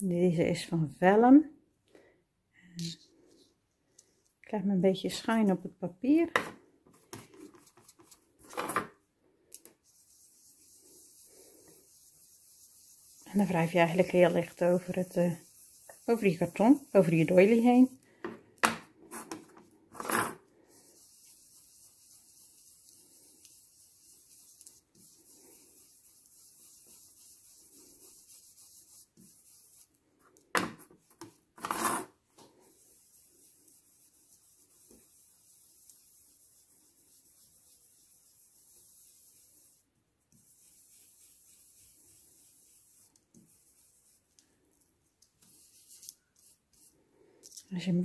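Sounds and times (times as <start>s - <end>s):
brush rubbing on ink pad: 6.9s - 8.8s, 9.6s - 18.0s, 19.0s - 30.4s, 31.0s - 44.6s, 45.4s - 47.0s
brush rubbing over card: 6.9s - 8.8s, 9.5s - 18.2s, 19.0s - 47.6s.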